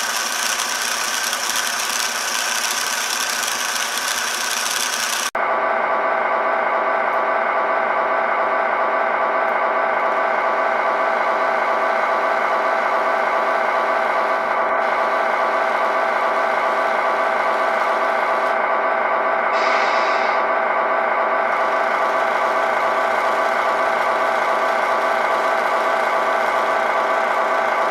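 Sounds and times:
toy truck motor whirring: 0.0 - 5.3.

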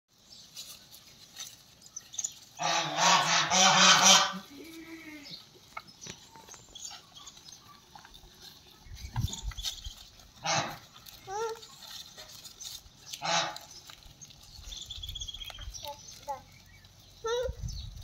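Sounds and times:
goat bleating: 2.6 - 5.5, 10.4 - 11.7.

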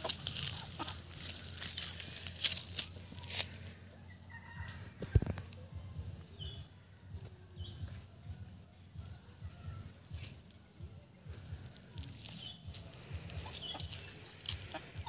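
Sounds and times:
faint chicken calls: 0.0 - 6.7, 11.8 - 15.0.

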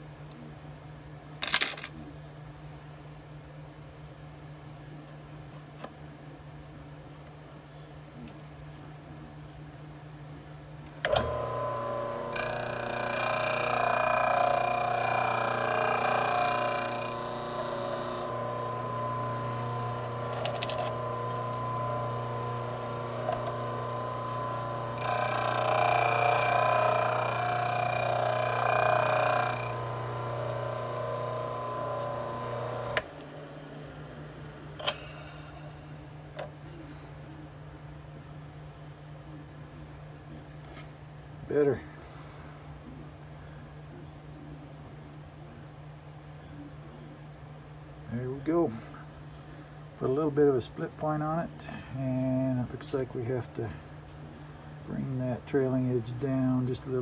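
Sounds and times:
electric motor humming: 11.1 - 33.4
high-pitched grinding whine: 11.1 - 33.6.

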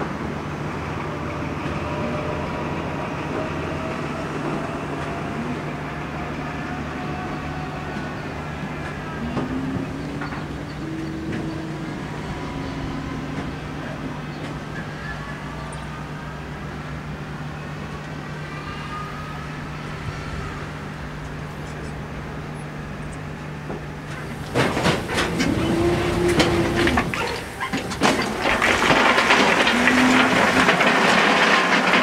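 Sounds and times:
machinery hum: 0.0 - 32.0
hoist motor whine: 17.8 - 32.0
metallic clanks and knocks: 23.7 - 32.0.

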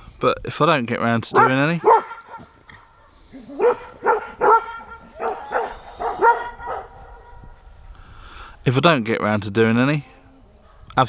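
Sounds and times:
dog barking: 1.3 - 7.4.

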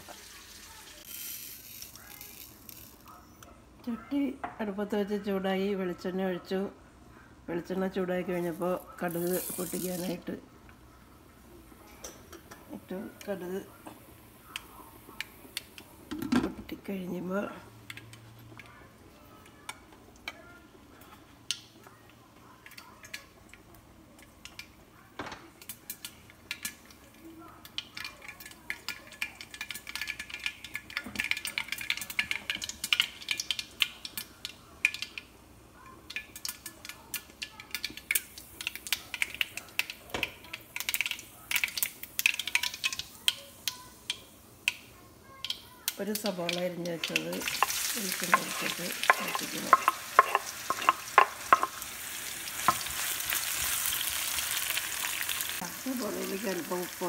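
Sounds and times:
oil sizzling: 0.0 - 3.2, 7.7 - 57.0
seeds popping against glass lid: 45.4 - 51.8.

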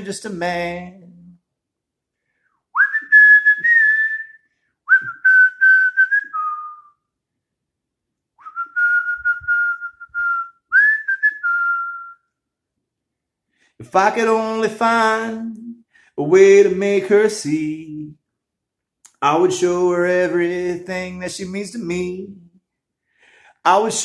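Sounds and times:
man whistling a slow melody: 2.7 - 7.1, 8.4 - 12.4.

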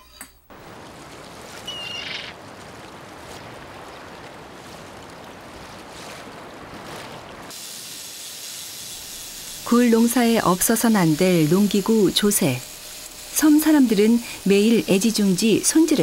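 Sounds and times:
sea surf: 0.5 - 7.7
wind: 0.5 - 9.7.

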